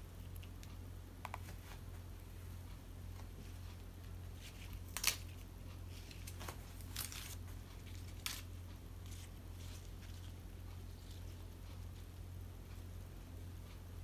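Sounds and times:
steady low hum: 0.0s - 14.0s
lettuce leaves rustling: 4.4s - 11.4s.

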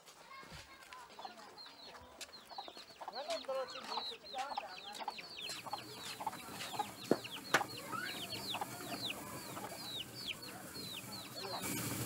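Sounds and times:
chickens cheeping: 1.1s - 12.0s.

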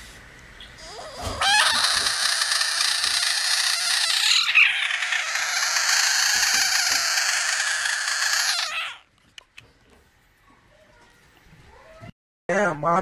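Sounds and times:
frog screaming: 0.8s - 9.1s.

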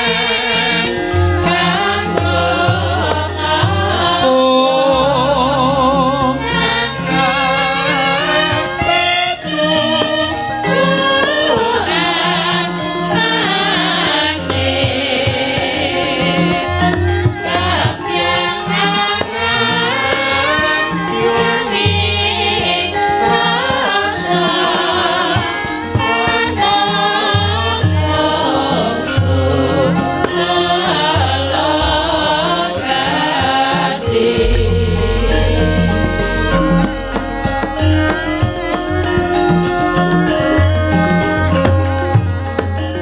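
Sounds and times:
women singing together: 0.0s - 35.8s
gamelan ensemble: 0.0s - 43.0s
low percussive strokes: 31.4s - 41.8s.

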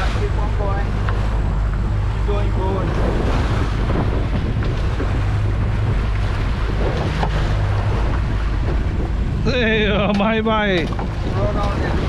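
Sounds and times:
boat engine running: 0.0s - 12.0s
wake rushing along hull: 0.0s - 12.0s
wind buffeting microphone: 0.0s - 12.0s.

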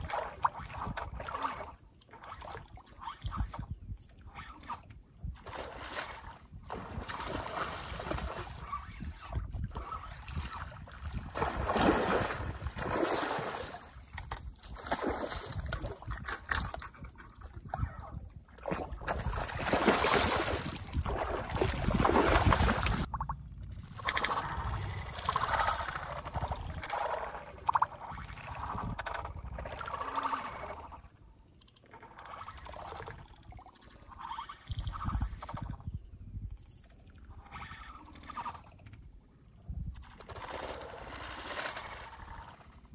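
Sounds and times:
water splashing and sloshing: 0.0s - 42.9s
wind on microphone: 2.7s - 30.0s, 34.2s - 40.1s.

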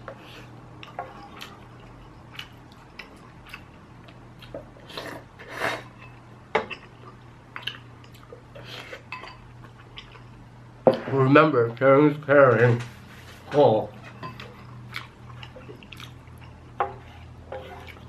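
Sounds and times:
chewing: 0.8s - 5.0s, 6.7s - 10.4s, 14.2s - 18.0s.

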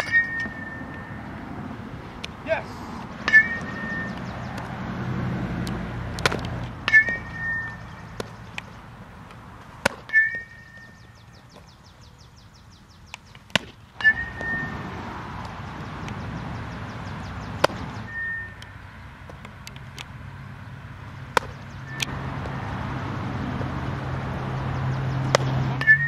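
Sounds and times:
metal bat pinging: 3.2s - 4.6s, 6.2s - 8.7s, 13.6s - 14.7s
ball striking leather gloves: 5.6s - 8.7s, 9.8s - 10.5s, 13.5s - 14.6s, 17.5s - 17.9s, 21.3s - 22.6s.

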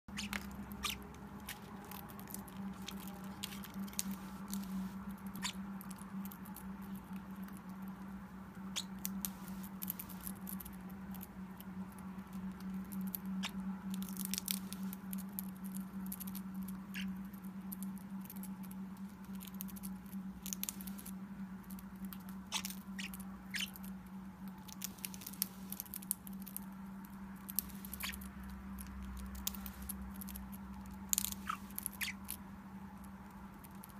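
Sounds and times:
steady low hum: 0.1s - 33.9s
parrot beak crunching cracker: 27.4s - 32.4s.

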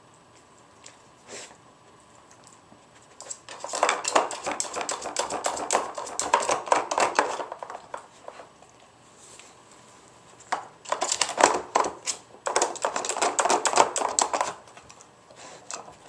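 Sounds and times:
plastic puzzle board clattering: 10.5s - 14.6s.

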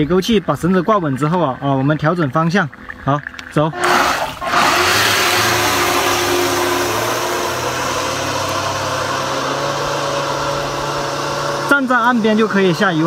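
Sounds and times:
electric motor humming: 3.7s - 13.0s.

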